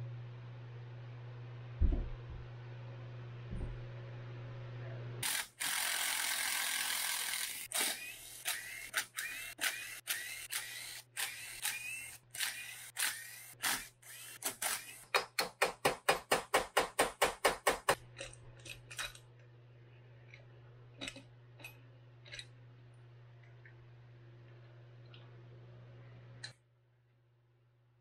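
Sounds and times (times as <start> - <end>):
impact driver whining: 5.2 - 15.6.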